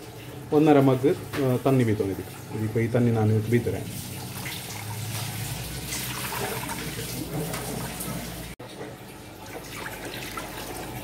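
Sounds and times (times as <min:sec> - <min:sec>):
water poured into pot: 0:03.6 - 0:08.6.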